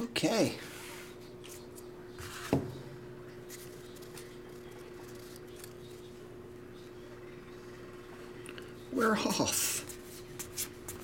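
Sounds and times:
steady low hum: 0:00.0 - 0:11.0
cards rustling: 0:03.5 - 0:06.1.

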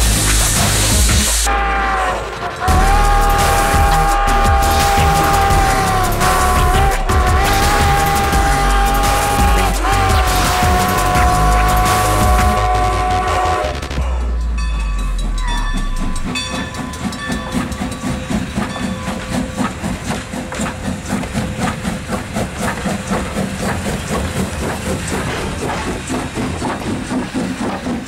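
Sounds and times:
steam locomotive chuffing: 0:00.0 - 0:28.0
steam whistle chord: 0:01.4 - 0:18.2.

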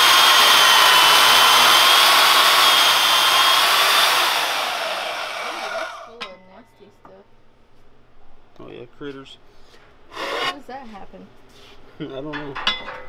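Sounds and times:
band saw cutting steel: 0:00.0 - 0:06.2, 0:10.1 - 0:10.7.

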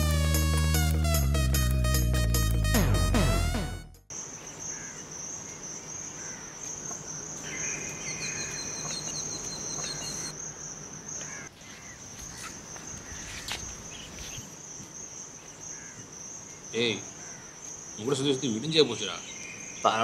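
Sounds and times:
faint insect chirps: 0:04.1 - 0:20.0
insects trilling: 0:04.1 - 0:20.0.

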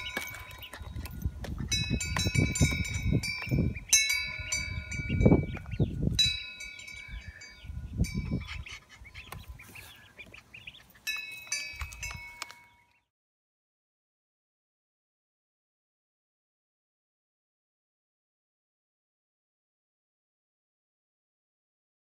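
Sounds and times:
wind buffeting microphone: 0:00.0 - 0:10.8
ducklings peeping: 0:00.0 - 0:13.0.

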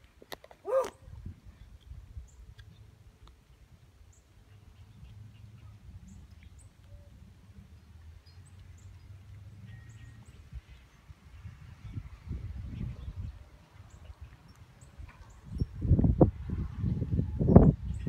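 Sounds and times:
low wind rumble: 0:00.0 - 0:18.0.

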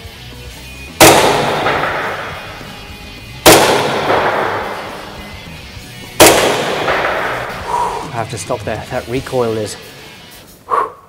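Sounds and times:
airsoft pistol shots with echo: 0:01.0 - 0:02.8, 0:03.4 - 0:05.4, 0:06.2 - 0:07.7.

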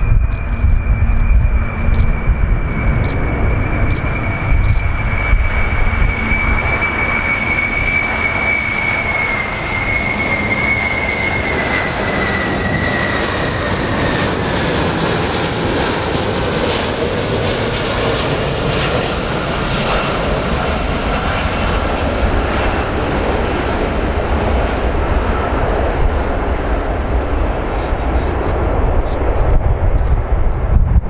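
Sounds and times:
high jet engine whine: 0:00.0 - 0:31.0
jet engines rushing: 0:00.0 - 0:31.0.

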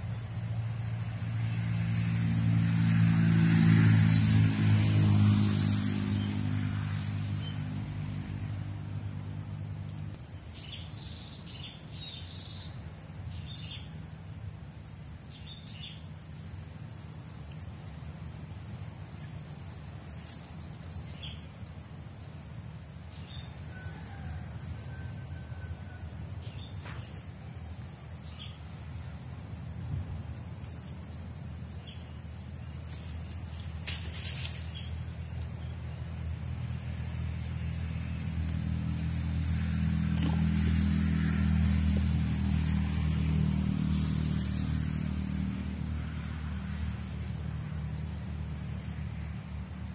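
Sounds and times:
high-pitched insect drone: 0:00.0 - 0:49.9.

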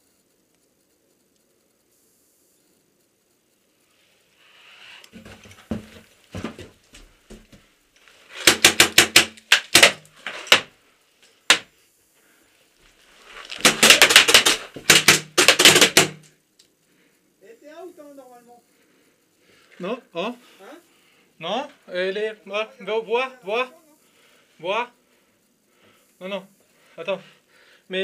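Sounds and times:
paintball marker pops: 0:13.5 - 0:16.3.

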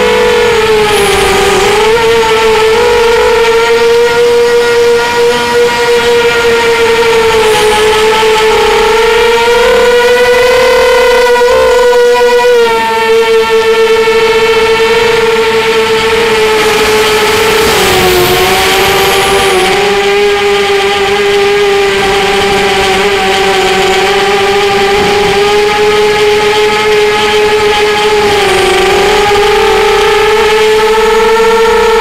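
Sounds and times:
drone propellers whining: 0:00.0 - 0:32.0.

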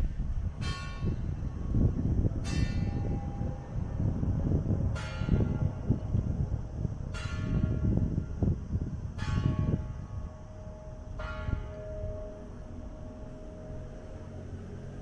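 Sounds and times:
low rumble: 0:00.0 - 0:15.0
church bell tolling: 0:00.6 - 0:01.3, 0:02.4 - 0:03.6, 0:04.9 - 0:05.9, 0:07.1 - 0:07.9, 0:09.2 - 0:14.1.

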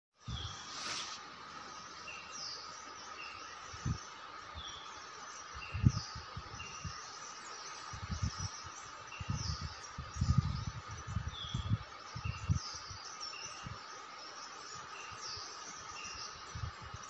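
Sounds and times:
birds chirping: 0:00.2 - 0:17.0.

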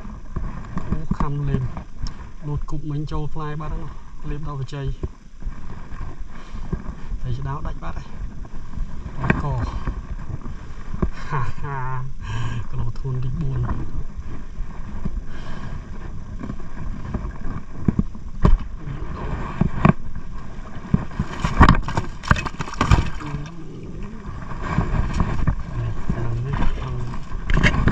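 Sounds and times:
wind rumbling on microphone: 0:00.0 - 0:27.9
knocks and scrapes in boat: 0:05.0 - 0:11.2, 0:13.4 - 0:27.9.

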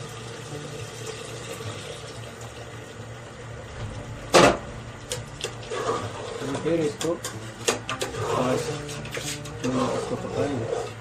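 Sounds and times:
broth pouring with watery hiss: 0:00.0 - 0:03.8, 0:05.1 - 0:06.9
loud metal clank: 0:03.7 - 0:07.3.

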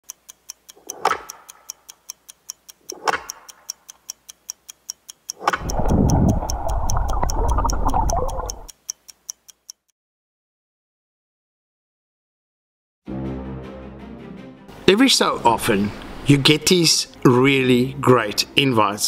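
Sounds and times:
clock ticking: 0:00.0 - 0:09.9.

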